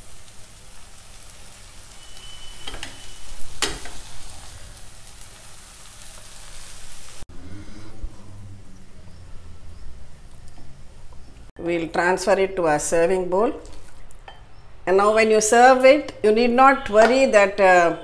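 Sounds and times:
noodles sizzling in pot: 0.0 - 7.3.

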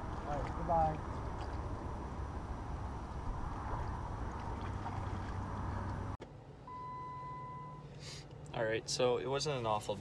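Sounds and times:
river water lapping at shore: 0.0 - 6.2
wind rumble on microphone: 0.0 - 6.2.

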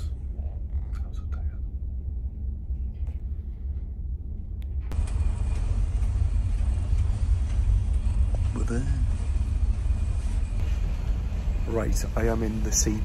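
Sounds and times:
low rumble of ship engines: 0.0 - 13.0
hissy background noise: 5.0 - 13.0.

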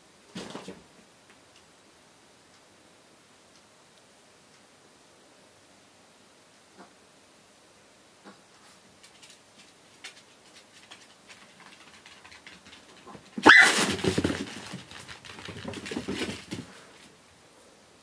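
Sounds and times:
paws tapping on floor: 9.0 - 17.1
dog barking: 13.4 - 13.8
dog yelping: 13.4 - 13.8.

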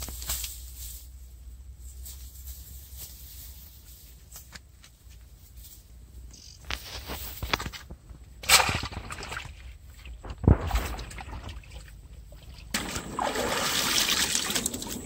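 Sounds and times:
net rustling in dry grass: 0.0 - 7.8.

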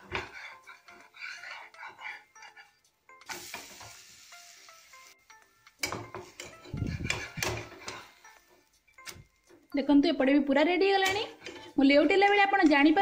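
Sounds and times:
spatula scraping a pan: 0.0 - 2.8, 6.2 - 8.4
batter sizzling in pan: 3.2 - 5.2.

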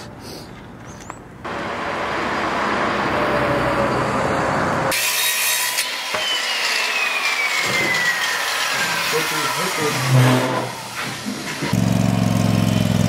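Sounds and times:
circular saw cutting wood: 4.8 - 12.8.

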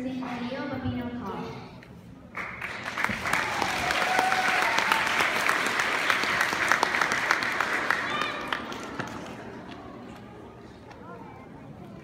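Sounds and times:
audience applauding: 2.4 - 9.9.

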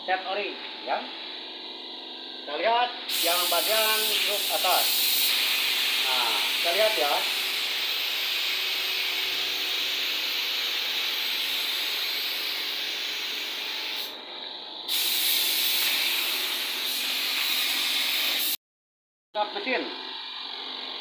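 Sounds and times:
spray gun hissing: 3.1 - 14.2, 14.9 - 18.6.

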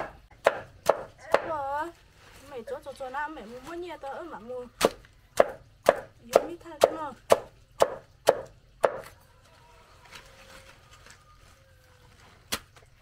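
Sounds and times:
cleaver chopping leafy stalks: 0.0 - 1.7, 4.8 - 9.1, 12.4 - 13.0.

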